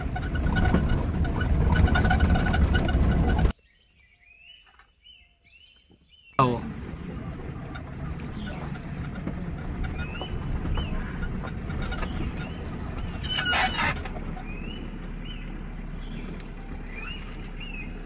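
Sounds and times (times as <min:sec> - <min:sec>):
small bird chirping: 0:03.5 - 0:18.0.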